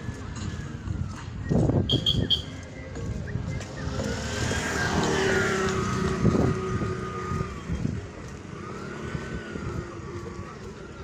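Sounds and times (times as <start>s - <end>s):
engines running in street: 0.0s - 11.0s
vehicle passing by: 3.0s - 11.0s.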